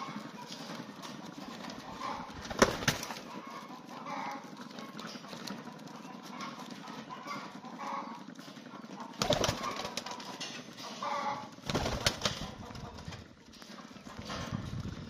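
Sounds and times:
pigeons cooing: 0:00.0 - 0:15.0
wings flapping: 0:01.0 - 0:03.4, 0:09.1 - 0:10.4, 0:11.6 - 0:13.3.

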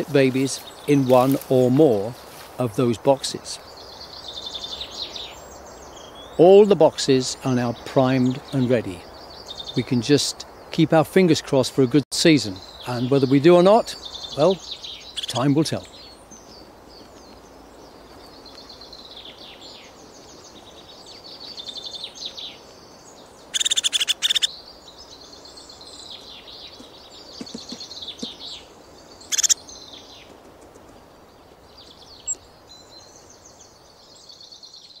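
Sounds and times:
songbirds calling and twittering: 0:00.0 - 0:35.0
loud rapid bird trill: 0:23.4 - 0:24.6, 0:25.2 - 0:29.9
sharp loud bird call: 0:23.5 - 0:24.5, 0:29.3 - 0:29.6.

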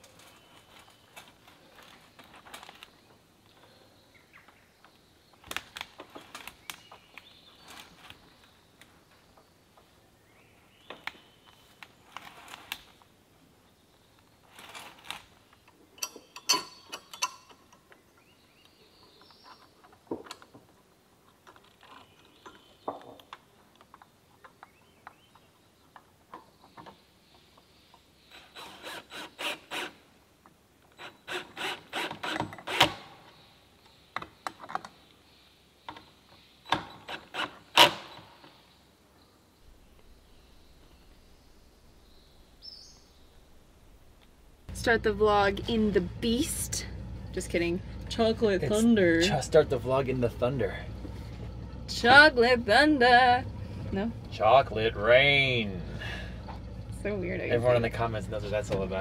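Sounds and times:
metal pipe clanks and scrapes: 0:16.0 - 0:17.8.

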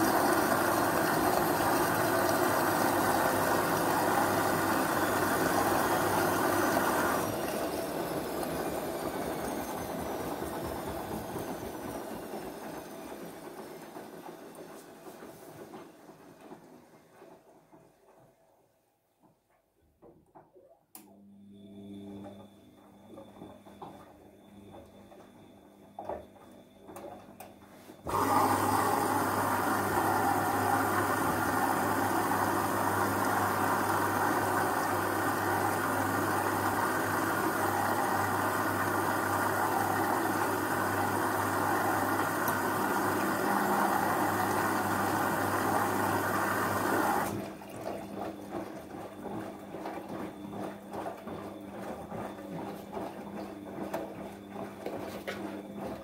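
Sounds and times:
washing machine drum turning: 0:00.0 - 0:18.4
washing machine water rushing: 0:00.0 - 0:18.7, 0:21.6 - 0:56.0.

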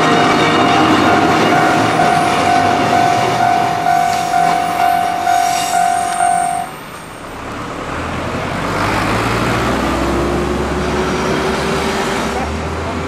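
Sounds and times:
level crossing alarm ringing: 0:00.0 - 0:07.3
traffic noise: 0:00.0 - 0:13.0.

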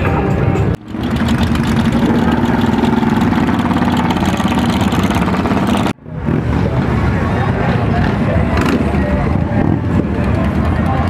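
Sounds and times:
motorcycle engine idling: 0:00.1 - 0:05.9.

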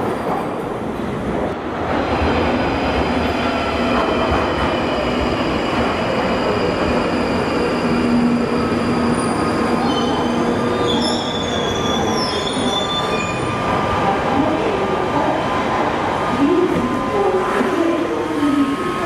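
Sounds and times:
train rumbling into platform: 0:00.0 - 0:19.0
high-pitched brake squealing: 0:06.2 - 0:13.7.

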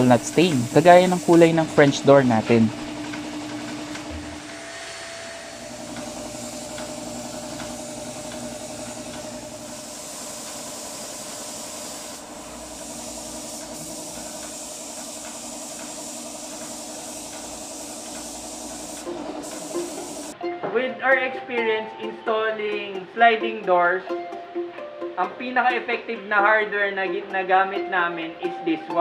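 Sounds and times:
spray gun hissing: 0:00.0 - 0:02.2, 0:05.6 - 0:20.4.

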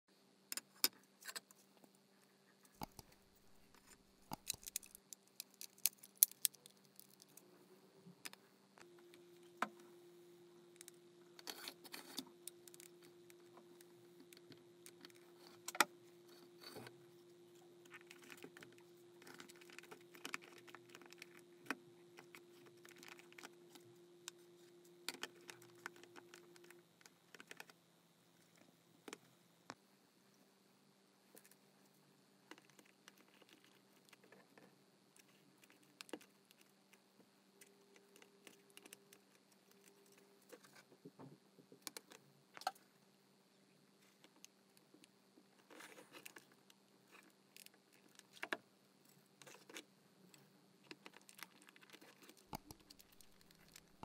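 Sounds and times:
faint steady hum: 0:00.1 - 0:54.0
plastic clock parts clicking and rattling: 0:04.3 - 0:07.4.

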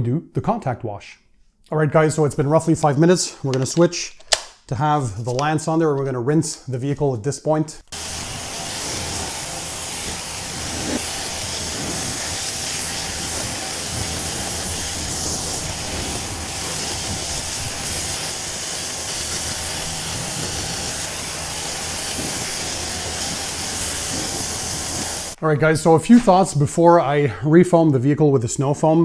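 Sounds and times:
pressure washer motor hum: 0:07.9 - 0:25.4
water spray hissing: 0:07.9 - 0:25.4.

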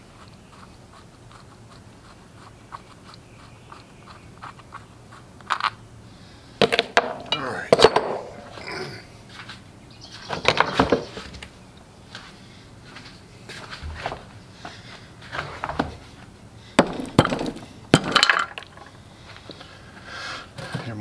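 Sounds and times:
metal pieces rattling in engine: 0:16.9 - 0:18.9.

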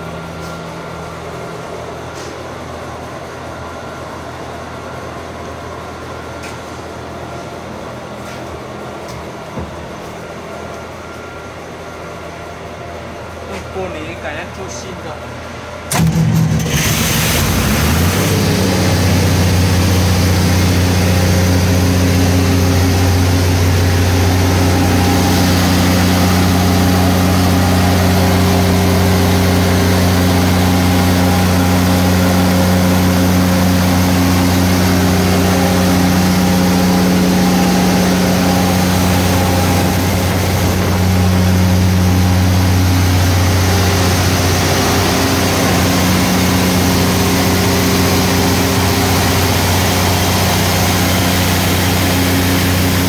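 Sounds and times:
diesel generator running: 0:00.0 - 0:53.0.

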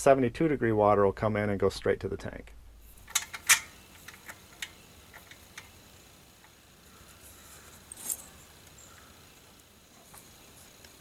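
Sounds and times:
sharp clatter: 0:03.0 - 0:06.6.

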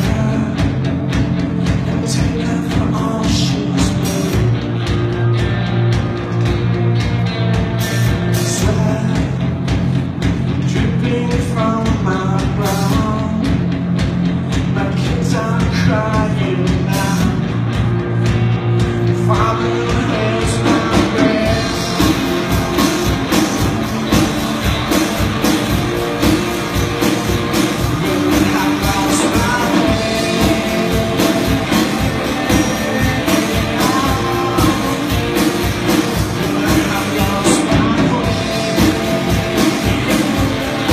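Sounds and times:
person singing lead vocal: 0:00.0 - 0:04.8, 0:08.3 - 0:09.8, 0:10.6 - 0:13.7, 0:14.5 - 0:17.6, 0:18.8 - 0:24.3, 0:27.6 - 0:40.9
drum kit with cymbals: 0:00.0 - 0:40.9
electric guitars: 0:00.0 - 0:40.9.

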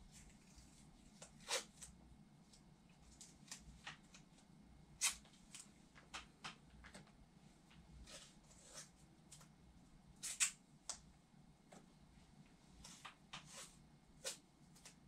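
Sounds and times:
soft rustles of handling tape: 0:00.0 - 0:09.6, 0:10.3 - 0:15.0.

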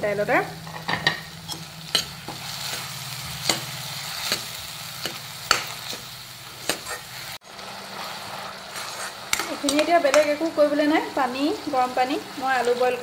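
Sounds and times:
food sizzling: 0:00.0 - 0:13.0
ladle scraping pan: 0:08.0 - 0:09.8.

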